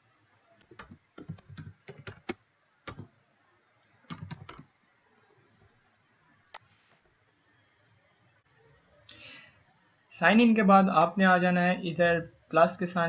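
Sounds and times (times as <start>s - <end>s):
keyboard keystrokes: 4.1s - 4.7s.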